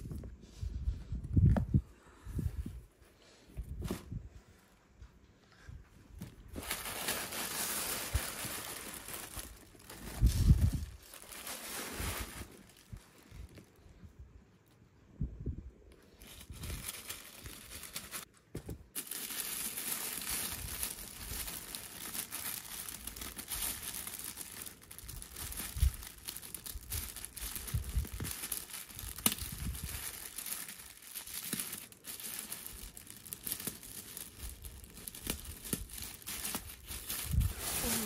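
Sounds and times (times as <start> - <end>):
tissue paper crinkling: 6.4 - 13.8, 16.1 - 18.4, 19.0 - 38.0.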